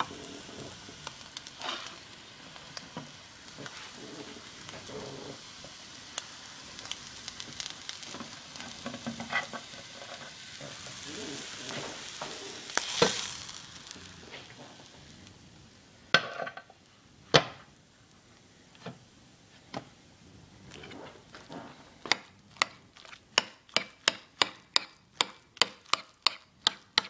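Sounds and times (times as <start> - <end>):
egg sizzling in hot oil: 0.0 - 27.0
spatula scraping and clicking: 22.1 - 27.0.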